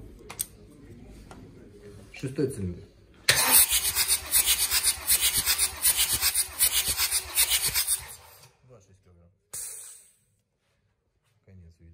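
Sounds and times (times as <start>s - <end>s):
engine starter cranking: 3.3s - 8.5s.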